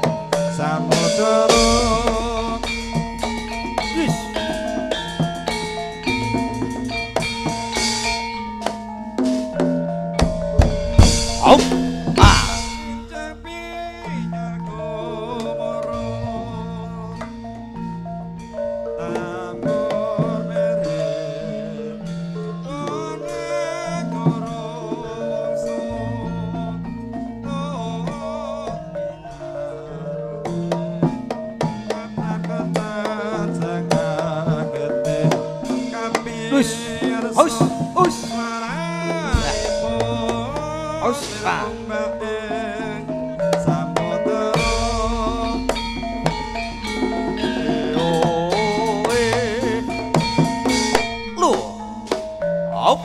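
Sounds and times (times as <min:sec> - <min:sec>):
drum strokes: 0:00.0 - 0:15.6, 0:30.5 - 0:53.0
wavering gliding melody: 0:00.0 - 0:24.0
gamelan music: 0:00.0 - 0:53.0
struck metallophones: 0:00.0 - 0:53.0
wavering melodic line: 0:00.0 - 0:53.0.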